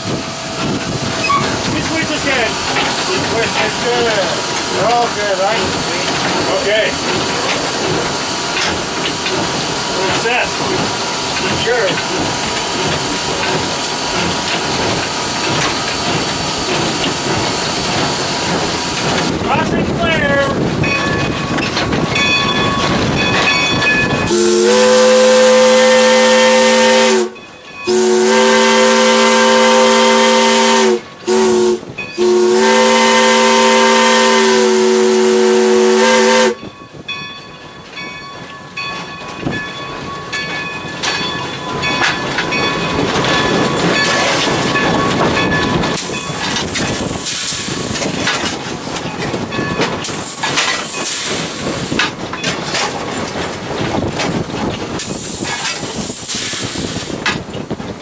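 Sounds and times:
steady steam hiss: 0.0s - 20.7s, 46.0s - 48.2s, 50.0s - 52.2s, 54.9s - 57.4s
steam locomotive whistle: 1.2s - 2.5s, 24.2s - 36.7s.

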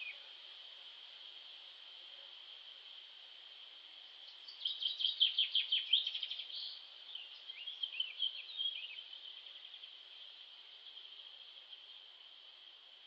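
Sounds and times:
small bird singing: 0.0s - 0.3s, 4.2s - 12.2s
high insect drone: 0.0s - 13.0s.

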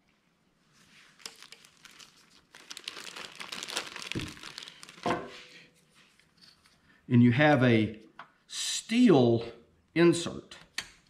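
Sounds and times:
plastic bag crinkling: 0.8s - 5.2s.

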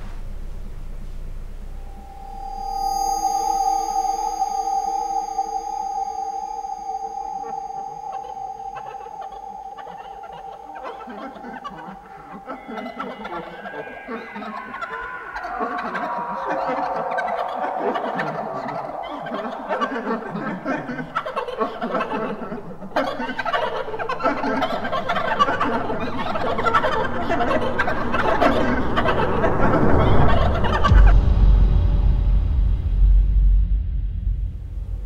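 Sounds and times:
deep rumble: 27.2s - 35.0s.

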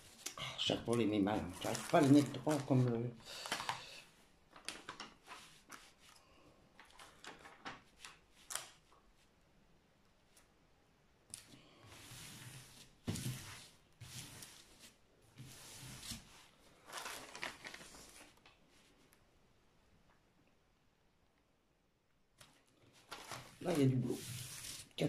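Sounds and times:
plastic film rustling and crinkling: 0.8s - 6.0s, 15.5s - 18.9s, 22.9s - 25.0s.

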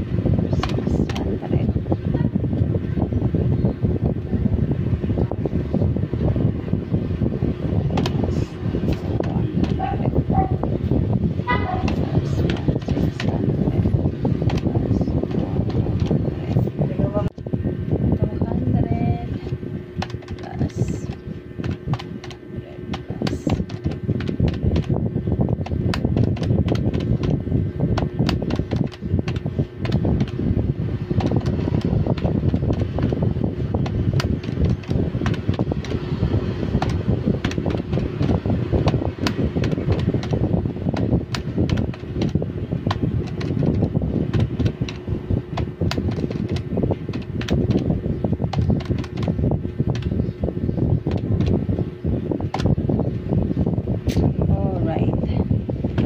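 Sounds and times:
loud rushing hum: 0.0s - 56.0s
calculator keys clicking: 0.5s - 1.4s, 7.9s - 10.0s, 11.5s - 16.7s, 19.4s - 30.4s, 31.1s - 50.2s, 51.0s - 51.6s, 52.5s - 52.8s.

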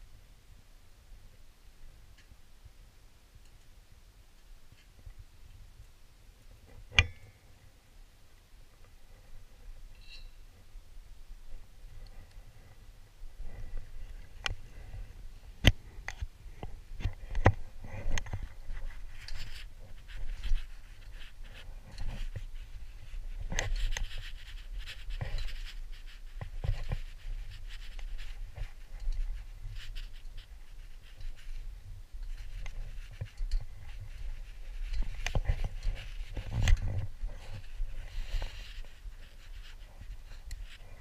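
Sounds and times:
metal clinks and scrapes on ladder: 9.9s - 10.4s, 17.0s - 31.6s, 32.2s - 41.0s.

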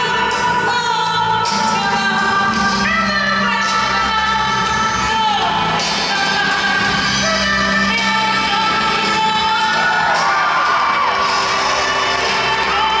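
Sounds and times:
song with singer over loudspeakers: 0.0s - 13.0s.

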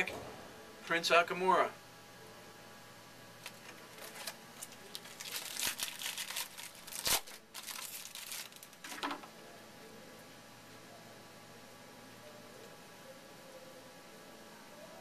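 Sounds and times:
cards snapping: 3.4s - 9.2s
trading cards rustling: 3.4s - 9.2s.

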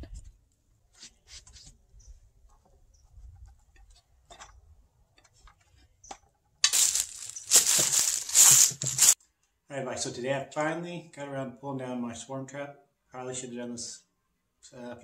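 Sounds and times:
faint clicks and rustles: 5.2s - 9.2s
footsteps crunching dry leaves: 6.7s - 9.2s.

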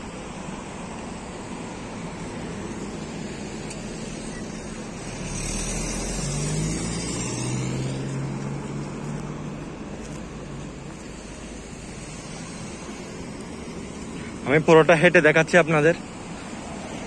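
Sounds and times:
road traffic noise: 0.0s - 17.0s
car driving past: 2.4s - 13.3s.

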